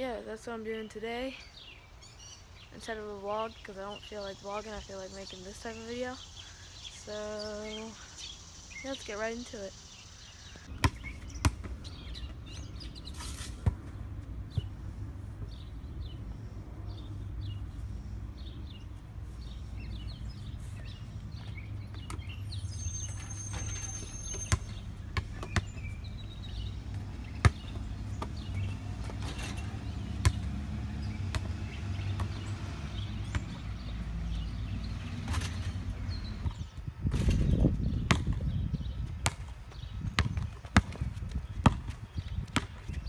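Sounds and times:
birds chirping: 0.0s - 43.0s
basketball bouncing on asphalt: 10.7s - 16.2s, 21.2s - 43.0s
ball striking backboard and rim: 26.9s - 30.6s, 38.1s - 38.4s.

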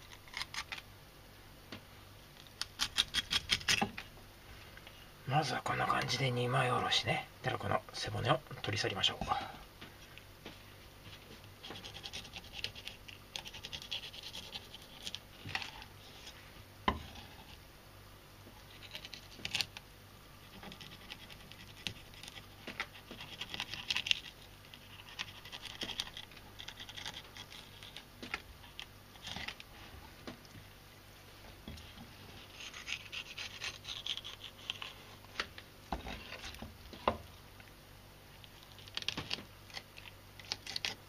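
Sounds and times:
knife scraping fish bones: 2.7s - 3.9s, 32.5s - 35.0s.

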